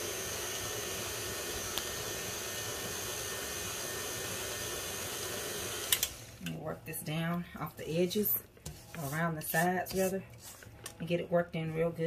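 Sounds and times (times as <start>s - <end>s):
stand mixer motor whirring: 0.0s - 6.2s.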